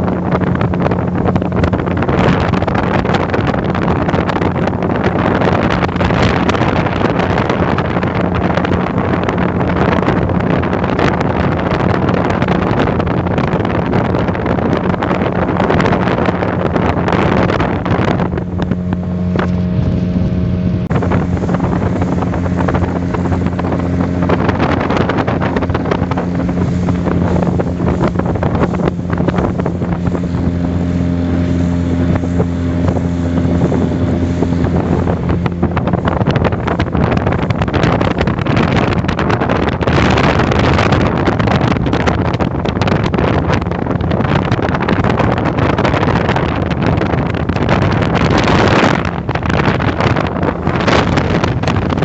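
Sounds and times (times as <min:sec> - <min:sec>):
speedboat engine cruising: 0:00.0 - 0:52.0
wind rushing over microphone: 0:00.0 - 0:52.0.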